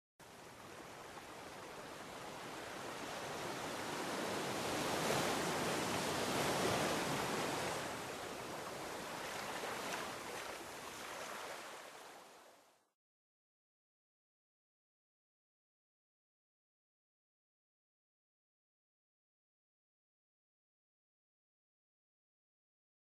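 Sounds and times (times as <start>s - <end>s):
ocean surf rushing: 1.2s - 12.1s.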